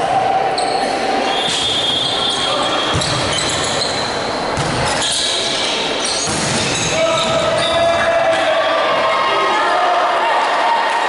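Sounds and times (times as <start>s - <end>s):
players' voices: 0.5s - 11.0s
sneaker squeaks on court floor: 0.6s - 8.0s
volleyball hits: 1.4s - 3.8s, 4.4s - 5.2s, 6.1s - 8.5s.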